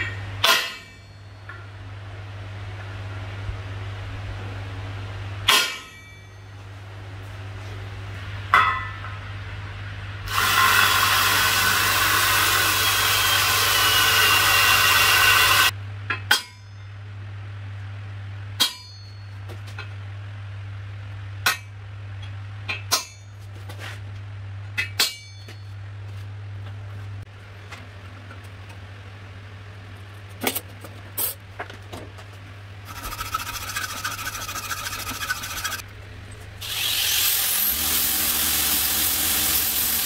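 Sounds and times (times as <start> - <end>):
hammer striking steel punch: 0.0 - 1.3, 5.5 - 6.4, 16.1 - 16.8, 18.6 - 19.3, 24.8 - 25.6
drill boring into metal: 10.3 - 15.7, 36.6 - 40.0
low steady hum: 15.7 - 36.9.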